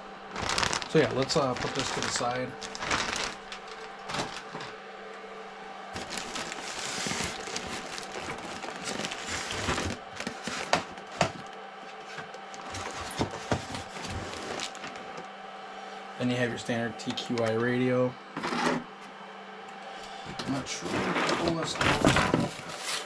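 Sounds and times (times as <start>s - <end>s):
plastic and cardboard crinkling: 0.3s - 4.8s, 6.0s - 11.5s, 12.1s - 15.1s.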